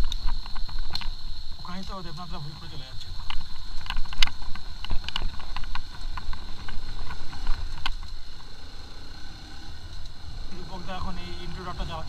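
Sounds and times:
bike rattling over stones: 0.0s - 8.8s
thin high whine: 0.0s - 8.9s
motorcycle engine rumble: 0.0s - 12.0s.

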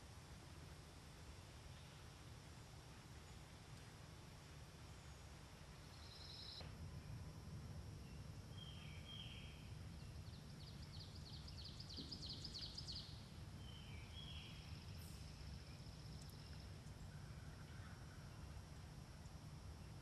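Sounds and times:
low steady rumble: 0.0s - 20.0s
woodland birdsong: 1.6s - 7.2s, 8.0s - 18.9s.

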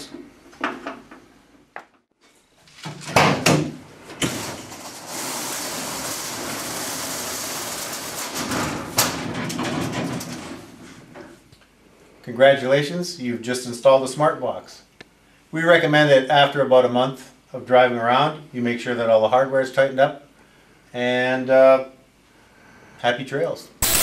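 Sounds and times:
drawer rolling along track: 4.0s - 11.3s.

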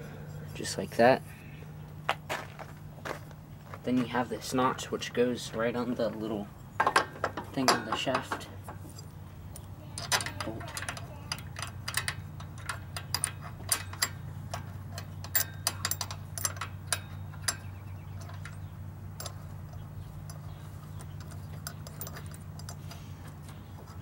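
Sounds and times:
small metal clicks: 6.8s - 24.0s.

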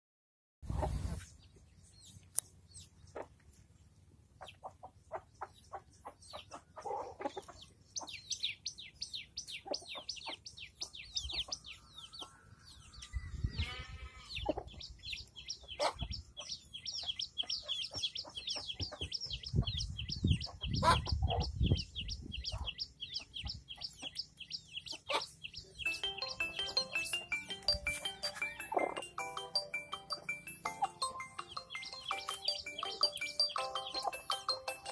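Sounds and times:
chick peeping: 0.6s - 34.9s
chicken calling: 9.2s - 19.1s, 20.4s - 21.6s, 22.5s - 34.9s.

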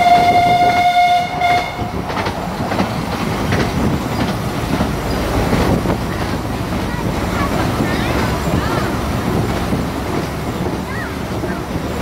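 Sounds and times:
steam locomotive whistle: 0.0s - 2.0s
train running on rails: 0.0s - 12.0s.

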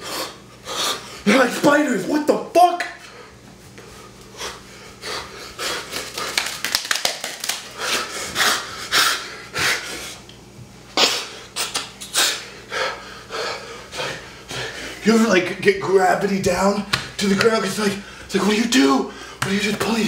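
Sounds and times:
faint electrical hum: 0.0s - 20.0s
man breathing hard: 3.0s - 6.5s, 7.6s - 10.2s, 11.2s - 15.0s, 18.0s - 18.3s, 19.0s - 19.4s.

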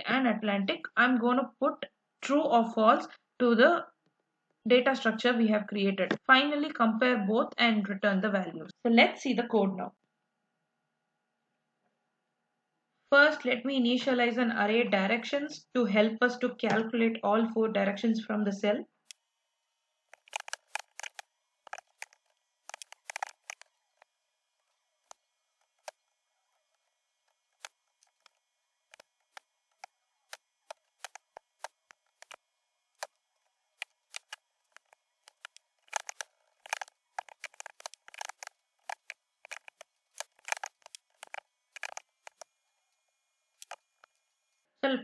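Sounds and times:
computer keyboard typing: 20.1s - 24.1s, 25.0s - 26.0s, 27.5s - 32.4s, 33.8s - 42.5s, 43.6s - 44.1s.

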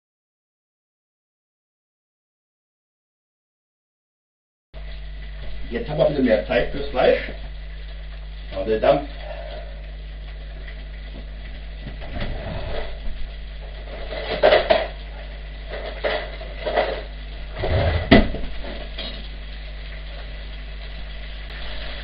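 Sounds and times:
steady low hum: 4.8s - 22.0s.

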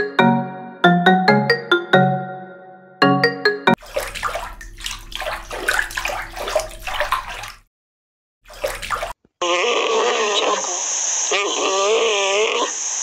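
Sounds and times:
water splashing and gurgling: 3.7s - 7.7s, 8.5s - 9.2s.

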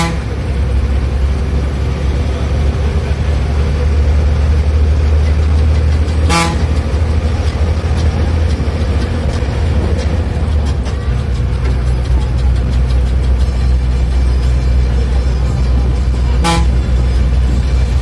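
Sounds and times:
horn toot: 0.0s - 0.4s, 6.2s - 6.8s, 16.3s - 17.0s
bus engine droning: 0.0s - 18.0s
light rattles: 3.8s - 18.0s.

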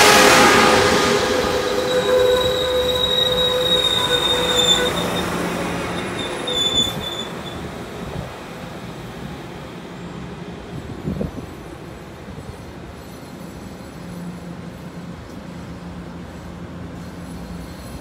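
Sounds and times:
train rolling rumble: 0.0s - 18.0s
wheel and brake squeal: 0.9s - 7.7s.

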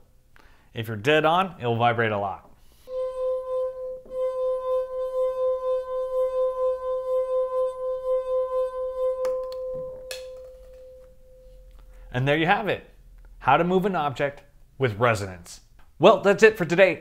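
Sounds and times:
wine glass singing: 2.9s - 12.0s.

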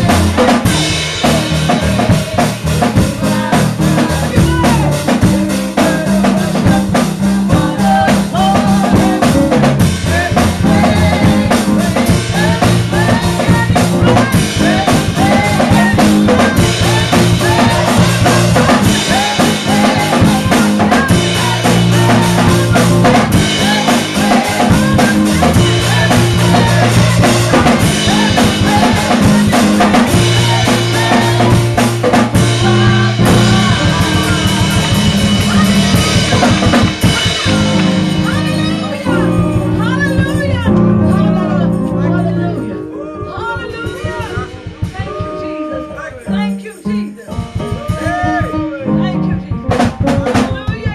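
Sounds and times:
keyboard low bass notes: 0.0s - 46.6s, 47.3s - 50.9s
driving drum kit: 0.0s - 50.9s
woman singing and wailing: 42.2s - 49.4s.

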